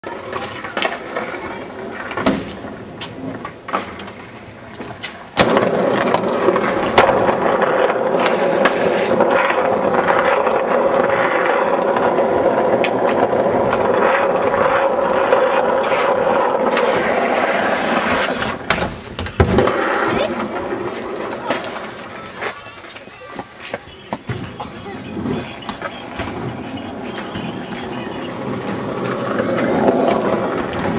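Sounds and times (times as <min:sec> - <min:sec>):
skateboard wheels rolling on asphalt: 0:00.0 - 0:30.9
skateboard knocks: 0:02.0 - 0:14.9.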